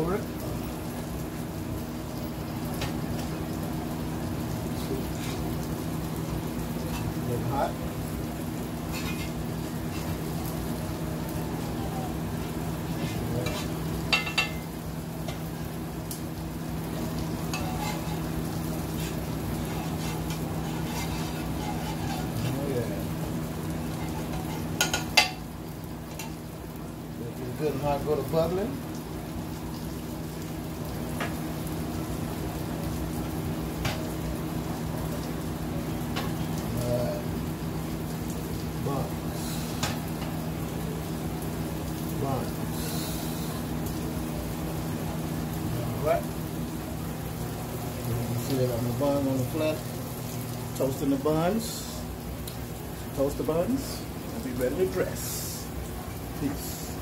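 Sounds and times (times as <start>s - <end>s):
butter sizzling on griddle: 0.0s - 57.0s
metal spatula scraping: 8.9s - 10.2s, 12.9s - 14.6s, 17.5s - 22.6s, 24.0s - 25.0s.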